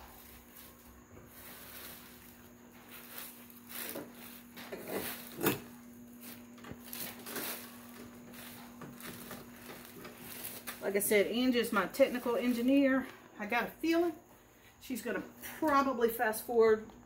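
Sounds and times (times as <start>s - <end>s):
steady low hum: 0.0s - 17.0s
plastic parts rustling and knocking: 3.1s - 10.8s.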